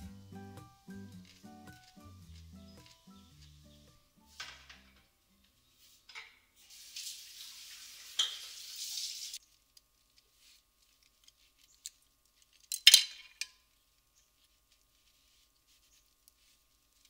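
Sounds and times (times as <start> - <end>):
water running from tap: 6.6 - 9.4.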